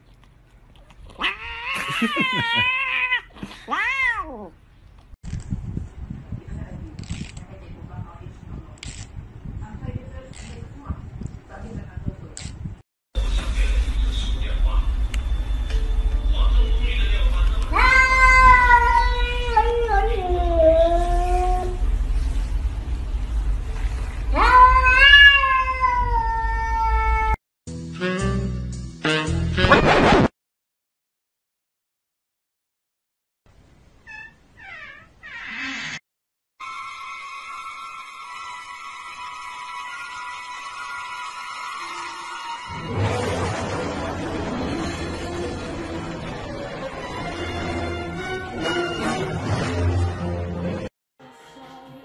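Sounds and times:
cat yowling: 1.2s - 4.6s, 17.7s - 21.8s, 24.4s - 27.4s.

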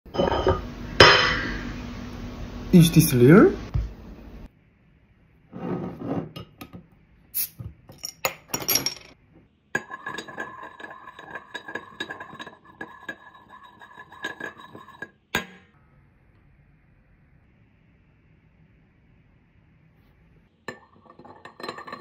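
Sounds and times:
glass rattling and ringing: 0.1s - 0.7s, 20.7s - 22.0s
glass clinking on glass: 0.1s - 1.4s
beer foaming: 9.8s - 15.2s.

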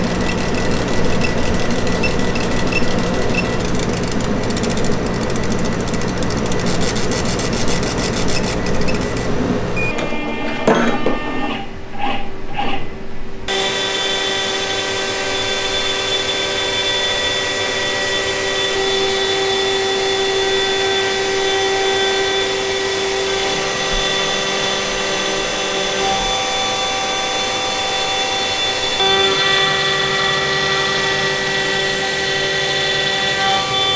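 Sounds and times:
laser engraver humming and ticking: 0.0s - 9.3s
router spindle whining: 0.0s - 9.8s, 13.5s - 33.9s.

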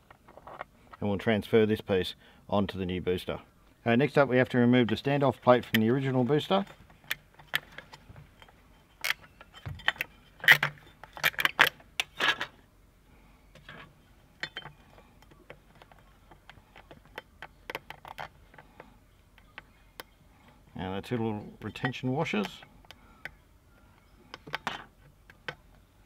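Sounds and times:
small metal parts clinking: 6.4s - 12.5s, 14.4s - 14.9s.

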